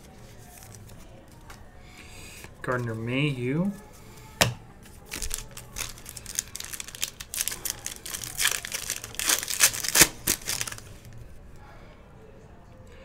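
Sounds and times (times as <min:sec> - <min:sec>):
foil wrapper crinkling and tearing: 0:05.0 - 0:11.2.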